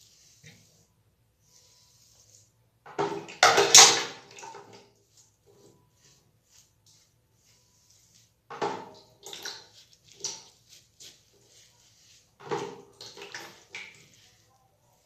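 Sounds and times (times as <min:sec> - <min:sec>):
liquid splashing in bathroom: 0:02.8 - 0:05.4, 0:08.0 - 0:15.0
water dripping: 0:09.0 - 0:10.6.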